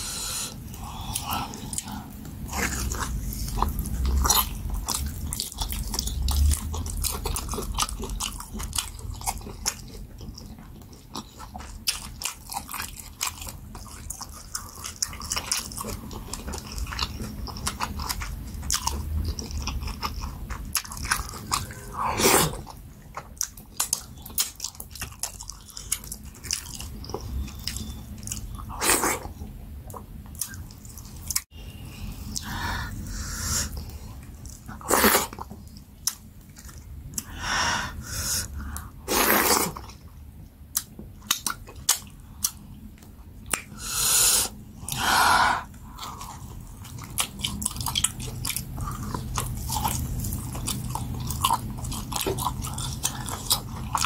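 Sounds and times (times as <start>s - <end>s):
person chewing with wet smacks: 1.0s - 31.5s, 33.7s - 37.3s, 38.6s - 43.8s, 45.6s - 54.0s
loud noisy mouth sounds: 43.8s - 45.8s.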